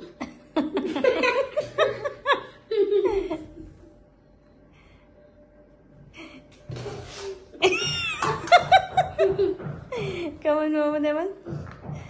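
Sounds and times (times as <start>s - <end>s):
air hissing from balloon: 6.7s - 7.6s.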